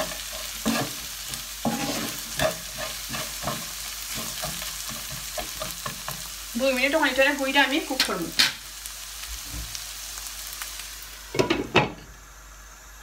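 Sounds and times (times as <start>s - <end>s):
spatula scraping a wok: 0.0s - 6.5s
food sizzling: 0.0s - 13.0s.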